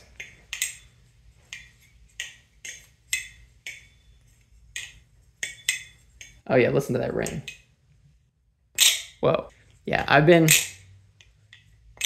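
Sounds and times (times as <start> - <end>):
high metallic ring: 0.0 - 6.4.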